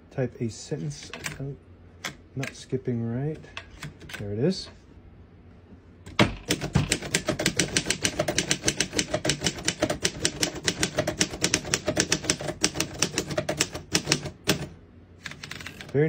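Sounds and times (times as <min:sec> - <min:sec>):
typewriter keystrokes: 0:06.1 - 0:14.7.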